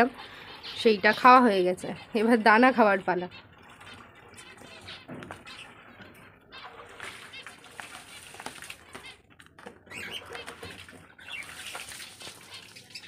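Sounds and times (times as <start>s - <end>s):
bird chirps: 3.2s - 9.2s, 9.8s - 13.0s
birds flapping wings in cage: 6.9s - 9.2s, 10.0s - 12.8s.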